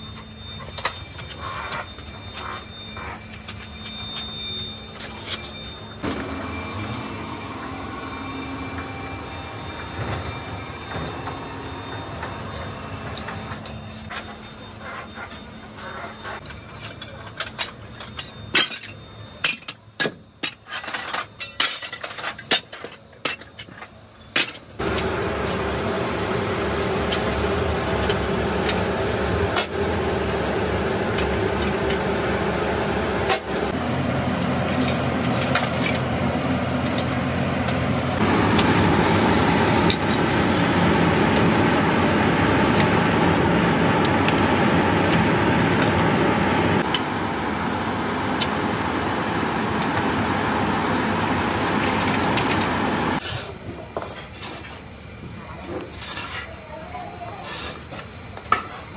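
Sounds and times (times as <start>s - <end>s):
machine drone with hum: 0.0s - 58.9s.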